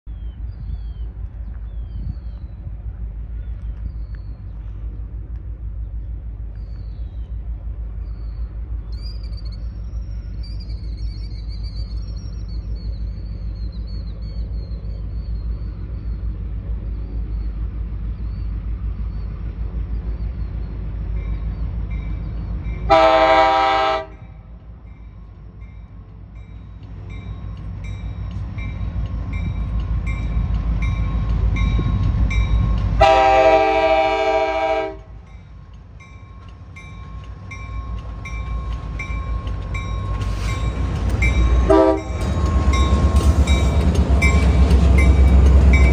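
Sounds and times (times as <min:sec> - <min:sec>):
diesel locomotive engine rumble: 0:00.0 - 0:45.9
birds chirping: 0:00.1 - 0:22.9, 0:35.2 - 0:45.9
train air horn blasts: 0:22.9 - 0:24.3, 0:33.0 - 0:35.2, 0:41.6 - 0:42.4.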